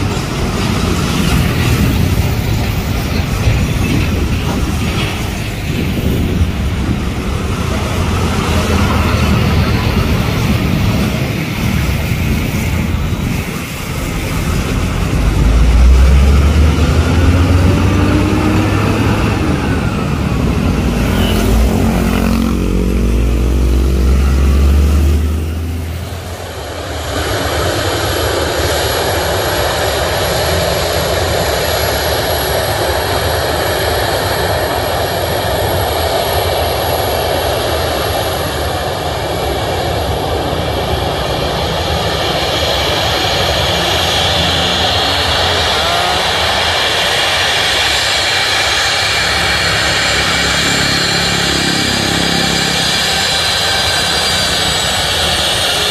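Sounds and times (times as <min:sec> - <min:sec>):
truck diesel engine rumbling past: 0:00.0 - 0:26.9, 0:40.1 - 0:55.9
jet engines running at low power: 0:00.0 - 0:55.9.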